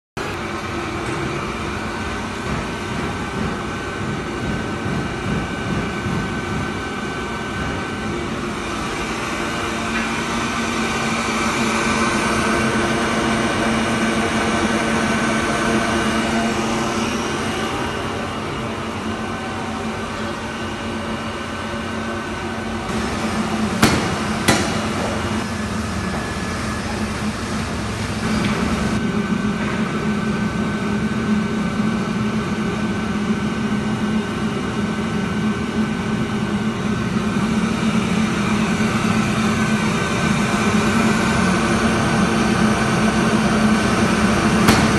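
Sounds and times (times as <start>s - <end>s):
coffee roaster mechanical hum: 22.5s - 44.9s
sharp knocks: 23.8s - 25.4s.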